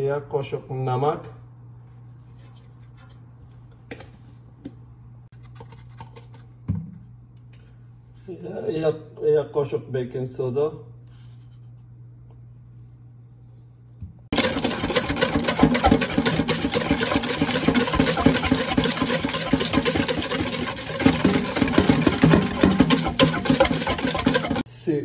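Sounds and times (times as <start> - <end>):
whisk rattling in metal bowl: 14.3 - 24.7.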